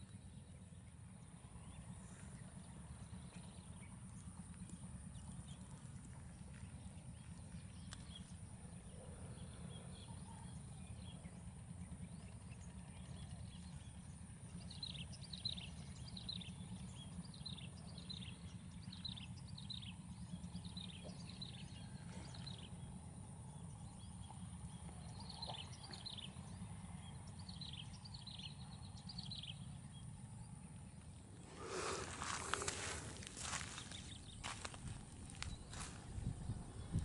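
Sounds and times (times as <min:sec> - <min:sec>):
low rumble: 0:31.2 - 0:37.0.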